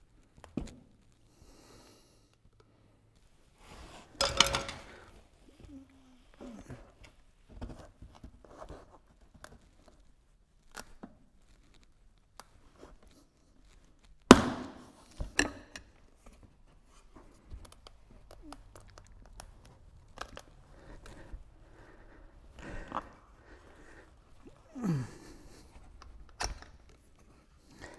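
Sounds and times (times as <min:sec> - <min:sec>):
tyre handling clicks and rubbing: 0:15.1 - 0:27.9.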